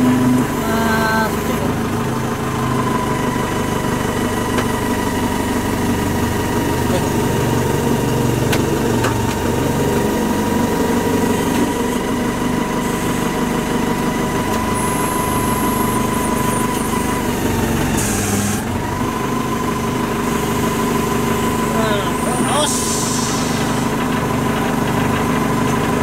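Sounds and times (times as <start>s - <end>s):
diesel engine idling: 0.0s - 26.0s
high whine: 20.9s - 26.0s.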